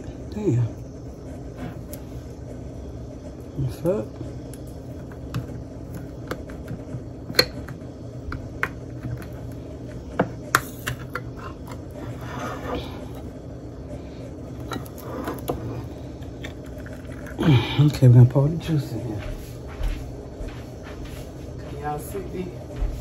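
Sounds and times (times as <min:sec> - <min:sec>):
steady low hum: 0:00.0 - 0:23.0.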